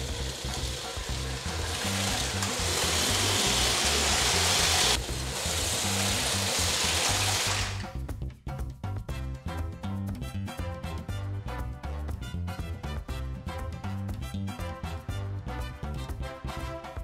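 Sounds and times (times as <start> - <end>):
toy train whirring on track: 0.0 - 7.9
background music with bass line: 0.0 - 17.0.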